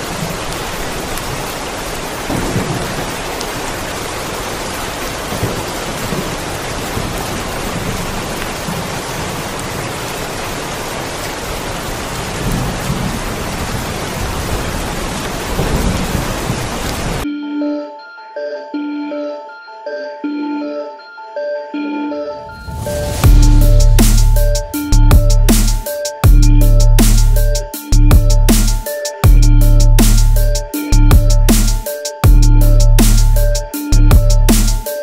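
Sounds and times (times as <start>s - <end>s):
thunder rumbling: 0.0s - 10.2s, 11.4s - 17.2s, 22.4s - 25.8s
heavy rain: 0.0s - 17.3s, 22.4s - 35.0s.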